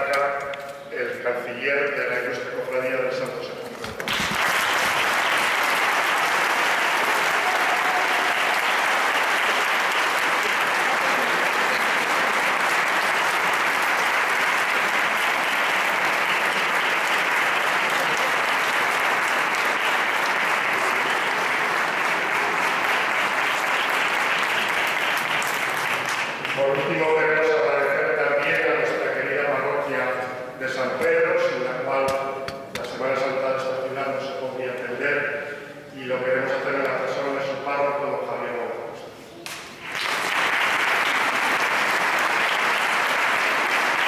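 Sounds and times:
audience applauding: 3.8s - 27.4s, 39.7s - 44.0s.

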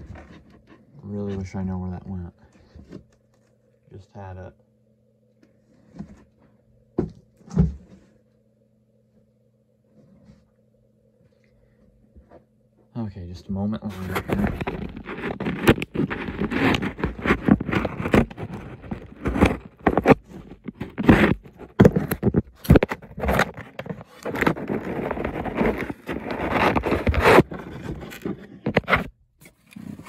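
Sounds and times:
cardboard scraping and crackling: 0.0s - 1.8s, 5.6s - 8.2s, 13.8s - 30.0s.

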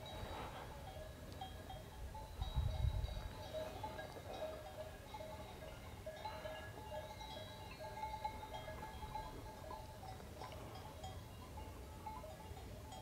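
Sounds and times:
livestock bells clanking: 0.0s - 13.0s.

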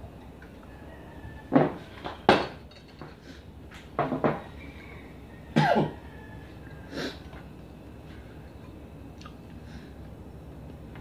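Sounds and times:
man coughing: 5.6s - 6.0s.

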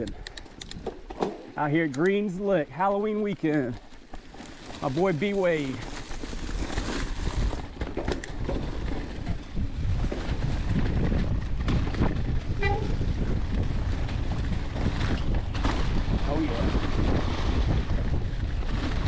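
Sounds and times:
bike knocks and rattles: 0.0s - 1.6s, 3.8s - 19.0s
tyres running through leaves: 2.9s - 19.0s
wind on microphone: 5.7s - 19.0s.

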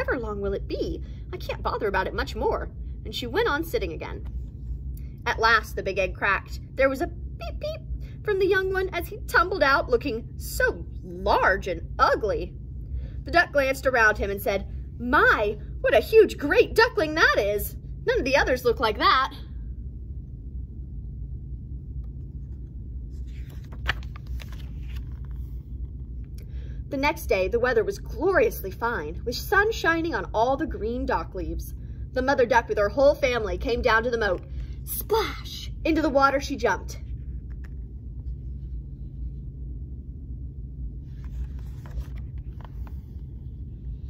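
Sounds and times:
low background rumble: 0.0s - 44.0s
steady low hum: 0.0s - 44.0s
paper page rustling: 22.2s - 26.0s, 41.0s - 44.0s.

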